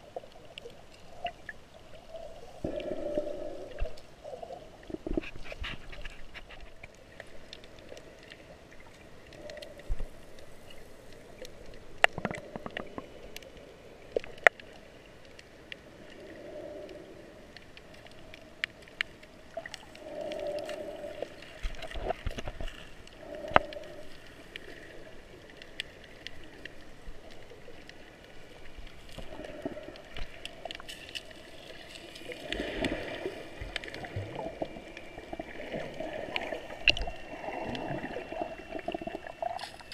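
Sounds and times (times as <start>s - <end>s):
underwater gurgling: 0.0s - 39.9s
sharp underwater clicks: 9.3s - 15.5s.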